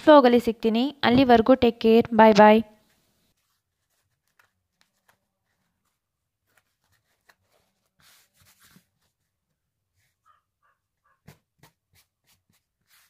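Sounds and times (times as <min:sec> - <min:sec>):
cloth rustling: 0:02.8 - 0:10.2.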